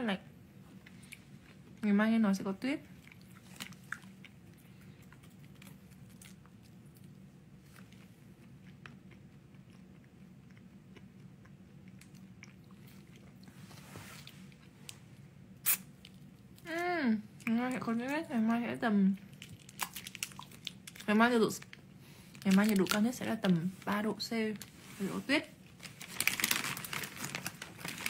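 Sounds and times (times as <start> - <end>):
low room hum: 0.0 - 28.0
lip smack: 15.6 - 15.9
wet chewing clicks: 19.2 - 21.1.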